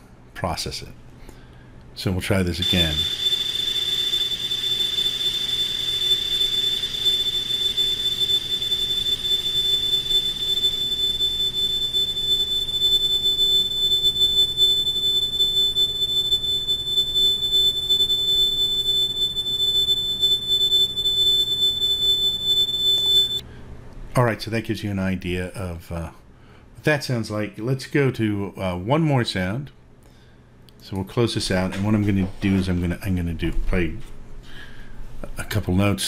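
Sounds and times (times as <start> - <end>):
high ringing drone tone: 2.6 - 23.4
low steady tone: 2.6 - 23.4.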